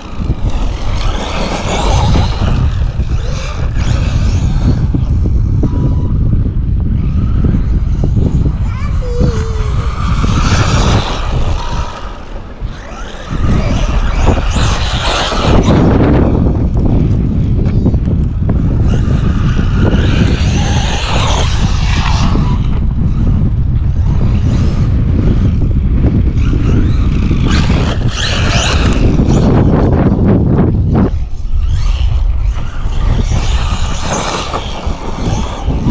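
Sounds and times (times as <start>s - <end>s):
toy truck motor whining: 0.0s - 5.2s, 7.1s - 16.4s, 18.8s - 22.8s, 26.4s - 29.8s, 31.1s - 35.9s
steady low rumble: 0.0s - 35.9s.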